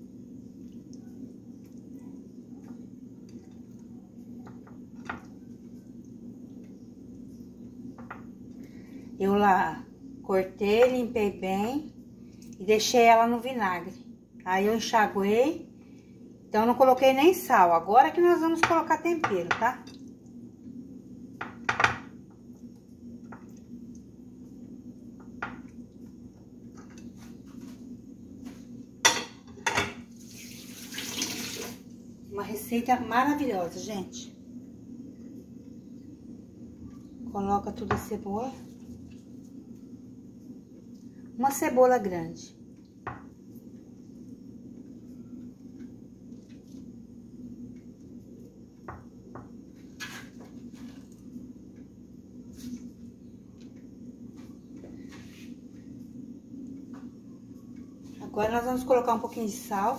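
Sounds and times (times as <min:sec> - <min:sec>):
steady low hum: 0:00.0 - 0:30.3, 0:31.8 - 0:59.9
running tap water: 0:30.1 - 0:32.0.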